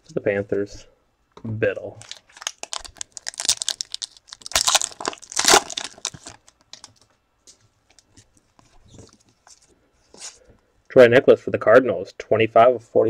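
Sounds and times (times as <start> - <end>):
wrapper tearing and crinkling: 2.0 - 7.0.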